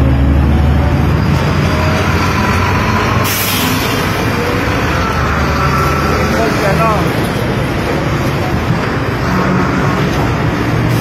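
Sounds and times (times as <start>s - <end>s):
air brake hiss: 3.2s - 4.0s.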